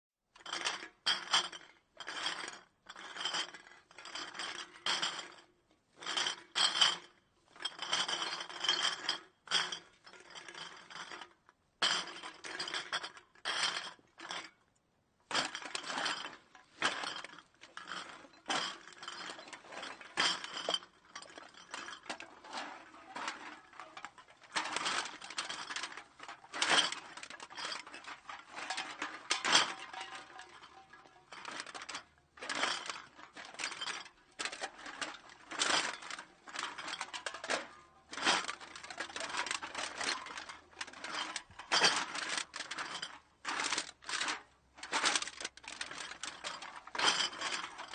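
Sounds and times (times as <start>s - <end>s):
glass bottles clinking: 6.1s - 11.2s, 15.3s - 47.9s.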